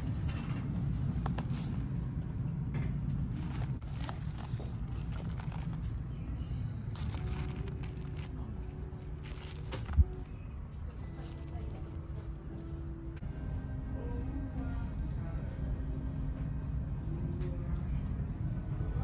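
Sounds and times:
low store background rumble: 0.0 - 19.0
packaging rustling and clicking: 3.4 - 6.0, 6.9 - 10.4, 11.1 - 12.3.

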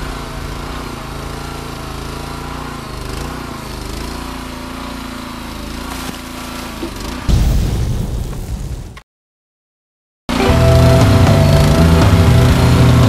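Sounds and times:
small gas engine running: 0.0 - 7.3, 10.3 - 13.0.

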